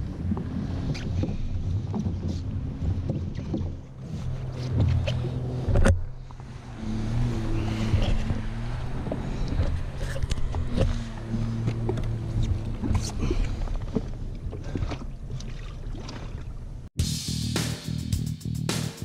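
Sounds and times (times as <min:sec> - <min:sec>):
fishing gear knocks and clatter: 0:00.1 - 0:06.2.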